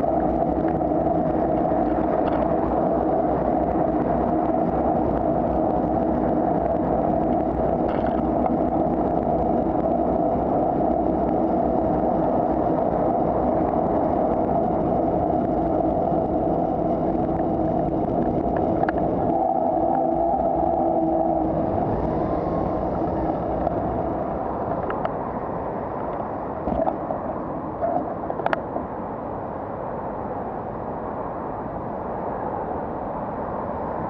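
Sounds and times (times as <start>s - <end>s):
road noise: 0.0s - 34.0s
wind rumble on microphone: 0.0s - 34.0s
car traffic: 7.2s - 31.4s.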